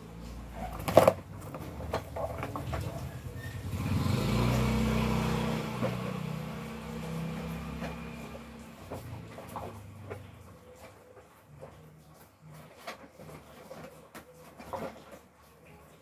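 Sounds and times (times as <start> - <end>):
vehicle engine passing by: 1.6 - 10.4.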